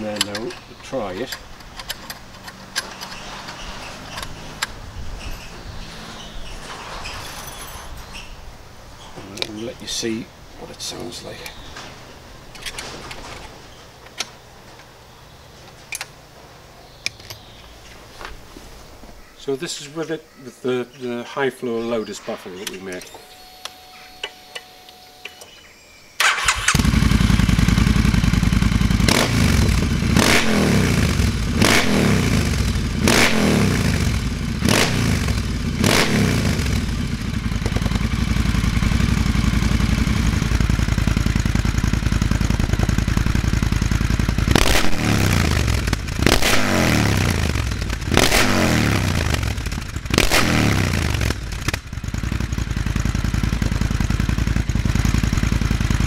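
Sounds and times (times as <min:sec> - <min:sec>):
motorcycle engine revving: 0:00.0 - 0:06.8, 0:26.2 - 0:56.0.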